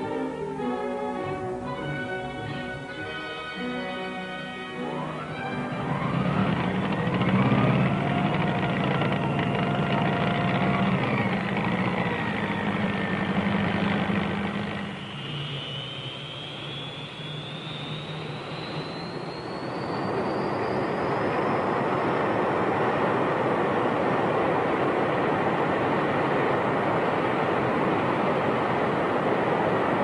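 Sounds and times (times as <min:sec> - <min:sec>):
high engine whine rising in pitch: 0:00.0 - 0:30.0
jet aircraft engine drone: 0:00.0 - 0:30.0.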